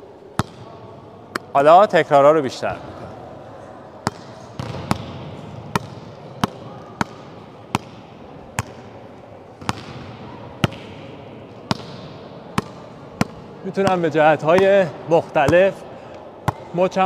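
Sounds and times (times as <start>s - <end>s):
hand slapping a volleyball: 4.0s - 8.0s.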